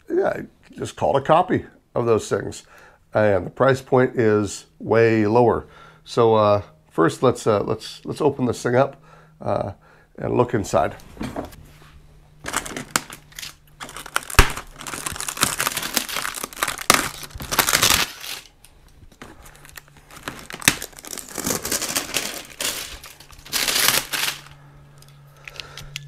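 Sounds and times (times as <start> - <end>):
plastic shrink wrap tearing: 12.4 - 24.6.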